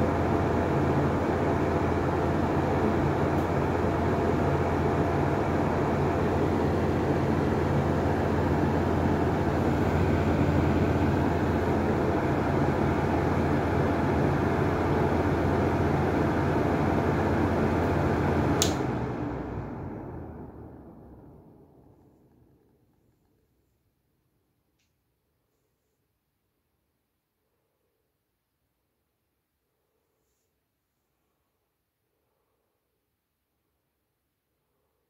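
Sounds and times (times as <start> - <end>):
fan running: 0.0 - 25.1
fan switch click: 18.6 - 18.9.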